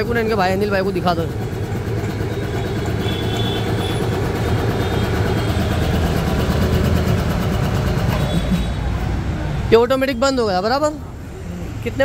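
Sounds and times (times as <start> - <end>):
air compressor pumping: 0.4 - 8.9.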